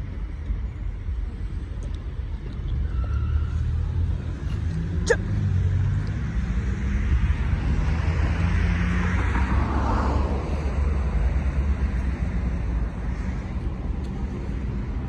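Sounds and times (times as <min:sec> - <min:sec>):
low outdoor rumble: 0:00.0 - 0:15.0
sharp high squeak: 0:02.8 - 0:03.8.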